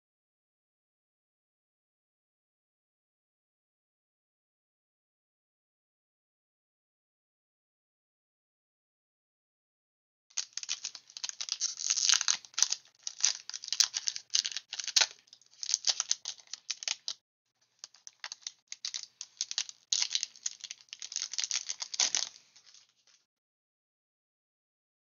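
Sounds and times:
foil wrapper crinkling: 0:10.4 - 0:17.2, 0:17.8 - 0:23.2.

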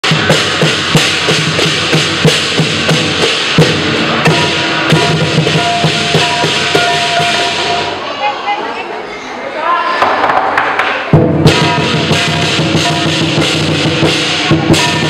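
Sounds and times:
crashing cymbals: 0:00.0 - 0:08.0, 0:11.1 - 0:15.0
large drum beating steadily: 0:00.0 - 0:08.0, 0:11.1 - 0:15.0
steady ringing tone: 0:04.3 - 0:08.0.

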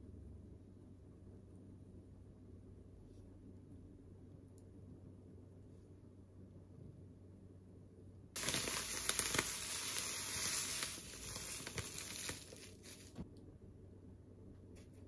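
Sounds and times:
breadcrumbs pouring onto a plate: 0:08.4 - 0:13.2
plastic bag crinkling: 0:08.4 - 0:13.2.

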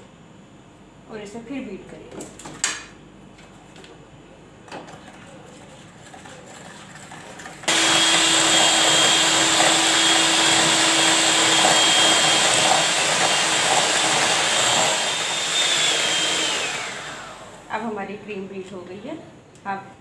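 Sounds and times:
electric hand mixer whining: 0:07.6 - 0:17.7.

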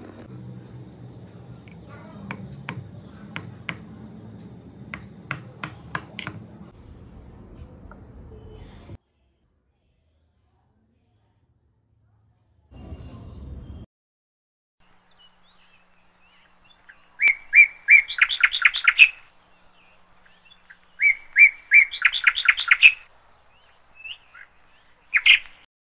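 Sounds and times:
songbird singing: 0:00.0 - 0:06.7, 0:14.8 - 0:25.7.

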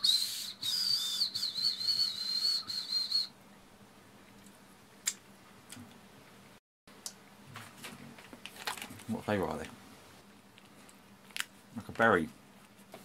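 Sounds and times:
high breathy candy whistle: 0:00.0 - 0:03.3.

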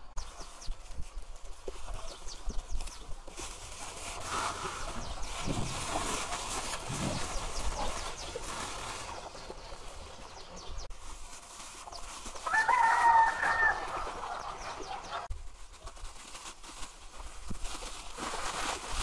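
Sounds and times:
rooster crowing: 0:12.4 - 0:14.6.

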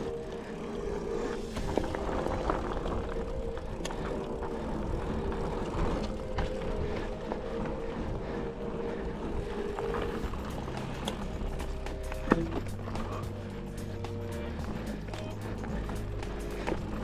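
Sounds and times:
bike tyre rumble on dirt: 0:00.0 - 0:17.0
bike rattling over rocks: 0:01.5 - 0:08.2, 0:09.4 - 0:13.8.

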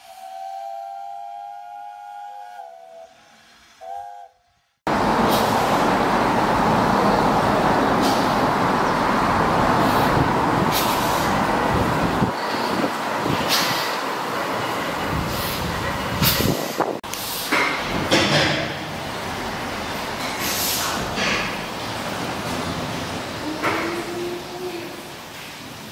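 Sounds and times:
steam whistle: 0:00.0 - 0:04.7
loud steady rushing noise: 0:04.9 - 0:23.8.

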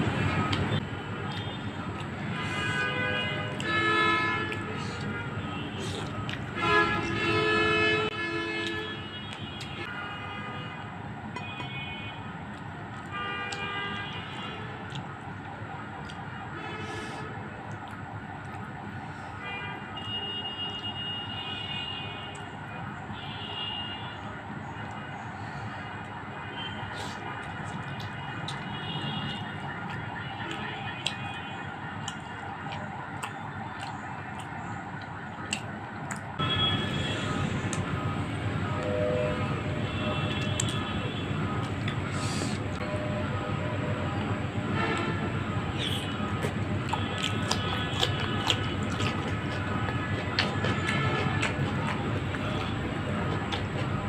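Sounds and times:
chewing: 0:00.4 - 0:07.6, 0:12.5 - 0:19.1, 0:24.8 - 0:38.0, 0:40.0 - 0:42.8, 0:44.8 - 0:54.0
high horn-like tones: 0:00.4 - 0:10.8, 0:36.4 - 0:46.4
wet mouth clicks: 0:05.7 - 0:06.5, 0:26.9 - 0:31.4, 0:32.0 - 0:36.4, 0:40.3 - 0:40.9, 0:41.6 - 0:42.8, 0:45.7 - 0:54.0.

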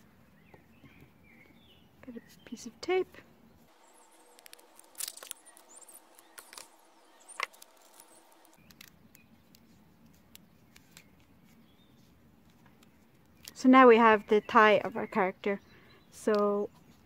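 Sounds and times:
sticky tape crackling: 0:03.7 - 0:11.3.

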